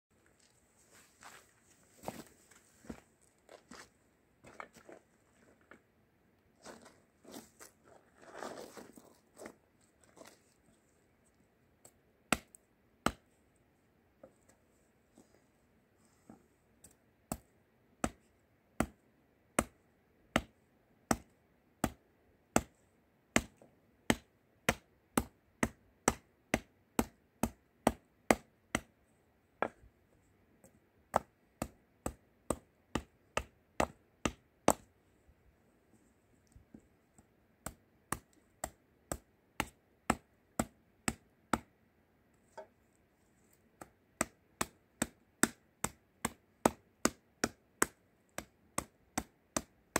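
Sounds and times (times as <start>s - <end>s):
hatchet chopping wood: 11.8s - 13.3s, 16.8s - 19.0s, 19.6s - 28.9s, 31.0s - 34.9s, 37.6s - 41.7s, 43.8s - 49.9s.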